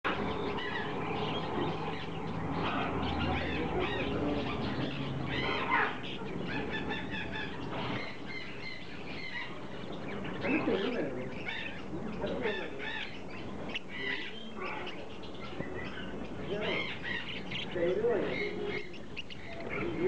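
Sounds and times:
birds chattering and chirping: 0:00.0 - 0:20.0
bird squawk: 0:00.1 - 0:20.0.

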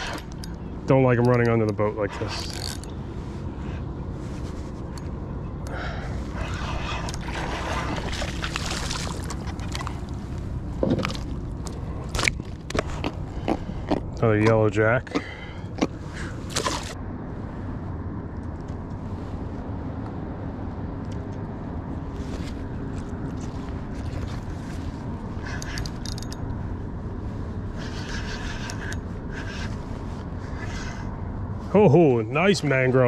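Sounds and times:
wind: 0:00.0 - 0:33.0
water lapping: 0:06.2 - 0:11.3.

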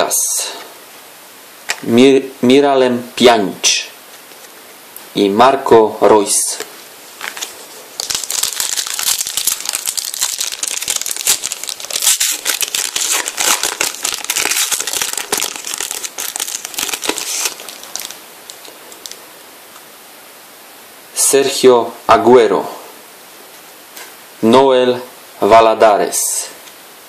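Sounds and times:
foil wrapper crinkling: 0:07.2 - 0:19.2.

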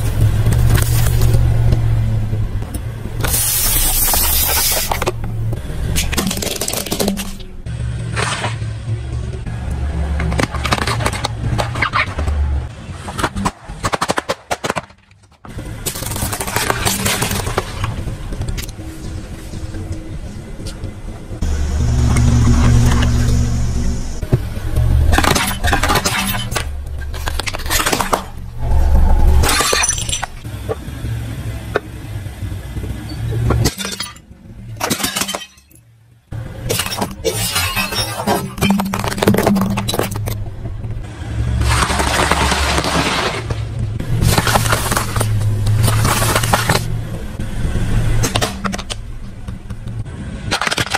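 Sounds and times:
toys and balloons popping and cracking: 0:13.1 - 0:17.9, 0:44.2 - 0:46.9
car engine running low: 0:17.3 - 0:33.6
crackling crunch under tyre: 0:41.5 - 0:46.9.

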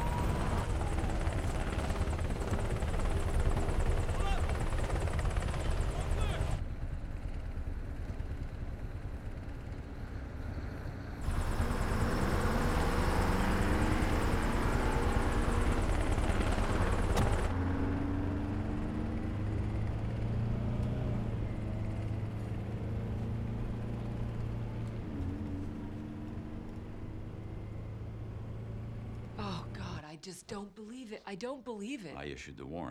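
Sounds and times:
city traffic rumble: 0:00.0 - 0:30.1
bus engine running: 0:08.0 - 0:30.0.

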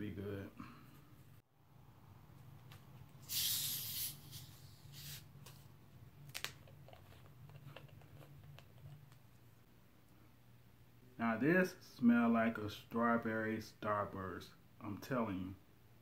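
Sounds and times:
gas hissing from bottle: 0:03.2 - 0:05.2.

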